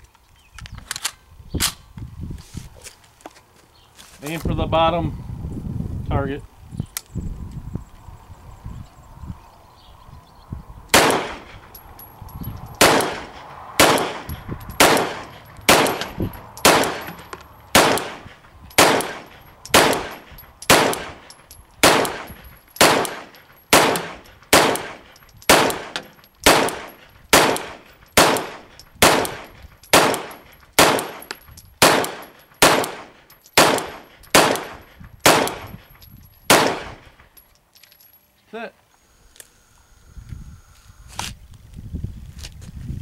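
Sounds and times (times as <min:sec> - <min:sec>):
pistol shots: 0:10.9 - 0:11.8, 0:12.8 - 0:35.8, 0:36.5 - 0:37.2.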